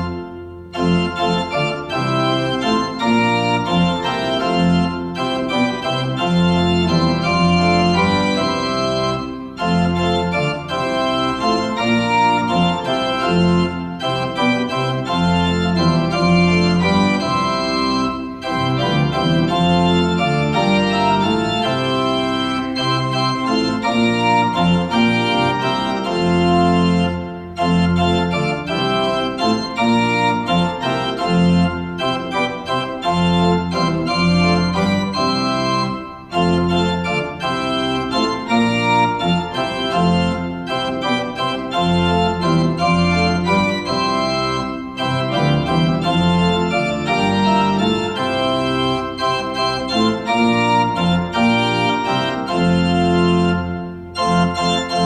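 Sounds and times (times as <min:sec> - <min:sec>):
organ playing hymn chords: 0:00.0 - 0:55.0.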